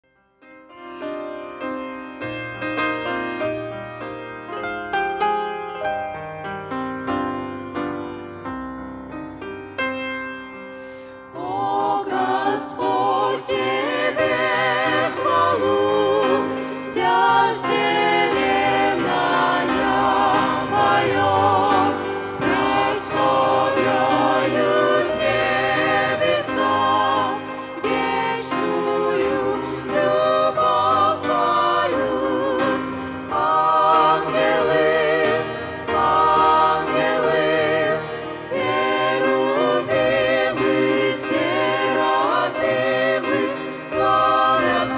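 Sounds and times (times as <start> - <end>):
mixed vocal group singing a hymn: 11.0 - 44.9.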